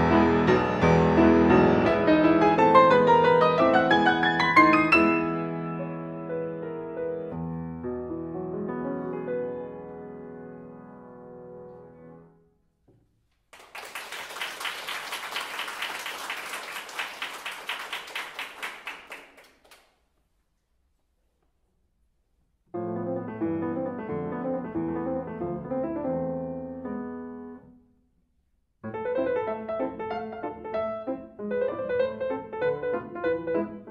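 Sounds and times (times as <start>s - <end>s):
solo piano playing: 0.0s - 12.4s, 22.7s - 27.7s, 28.8s - 33.9s
audience applauding: 13.5s - 20.0s.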